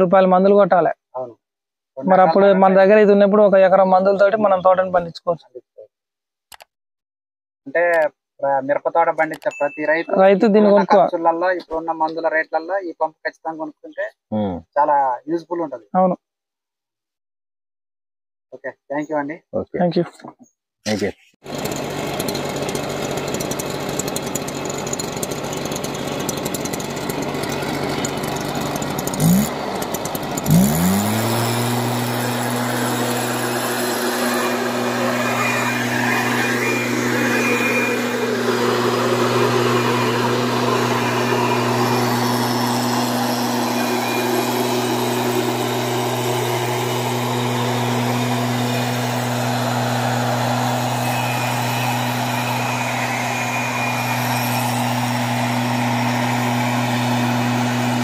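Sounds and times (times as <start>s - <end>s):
two-stroke engine revving: 21.4s - 58.0s
blower air rushing: 25.3s - 58.0s.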